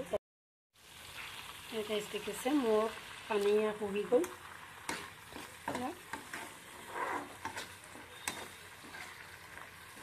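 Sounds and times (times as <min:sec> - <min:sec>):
greens sizzling in a wok: 0:00.8 - 0:10.0
spatula scraping wok: 0:04.2 - 0:10.0.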